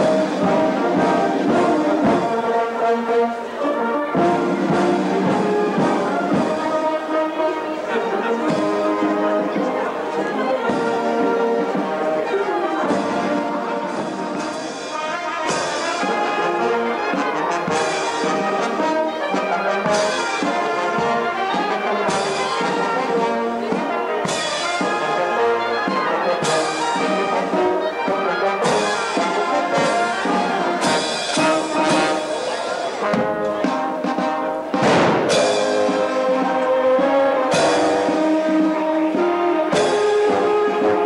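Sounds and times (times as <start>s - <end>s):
marching brass band playing: 0.0s - 41.0s
cymbal crash on the beat: 34.7s - 36.2s.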